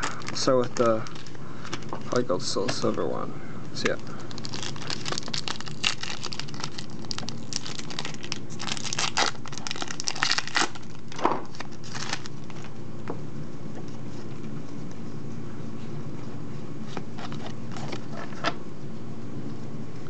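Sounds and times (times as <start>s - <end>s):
foil wrapper crinkling and tearing: 0.0s - 3.1s, 3.8s - 12.7s.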